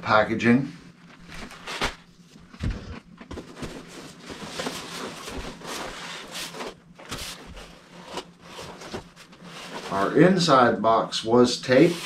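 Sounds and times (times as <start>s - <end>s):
cardboard scraping on cardboard: 11.7s - 12.0s.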